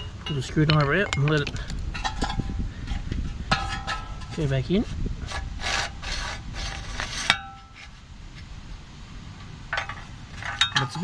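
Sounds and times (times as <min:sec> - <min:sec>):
handling noise: 0:00.0 - 0:05.4, 0:09.3 - 0:11.0.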